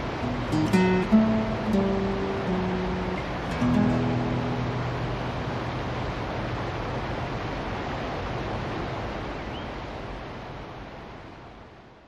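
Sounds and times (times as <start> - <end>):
rushing waterfall or river: 0.0 - 12.0.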